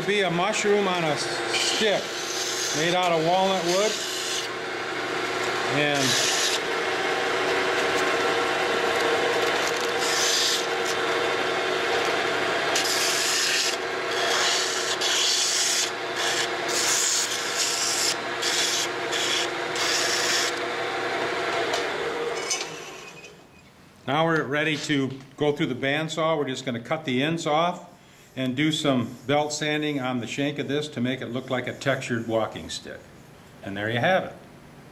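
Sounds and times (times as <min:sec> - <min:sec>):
lathe motor hum: 0:00.0 - 0:23.3
sandpaper rasping on wood: 0:01.6 - 0:04.4, 0:05.8 - 0:06.6, 0:09.8 - 0:10.9, 0:12.8 - 0:20.5.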